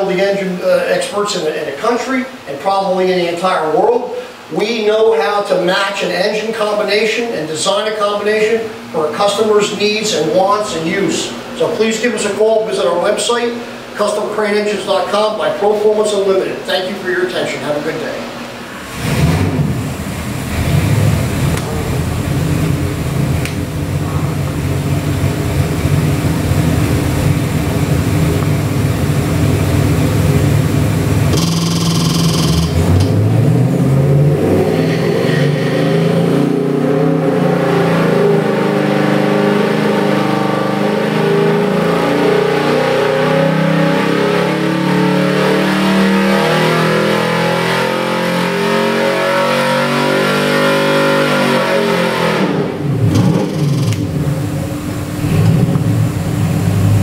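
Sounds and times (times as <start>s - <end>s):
engine revving on a dyno: 18.3s - 57.0s.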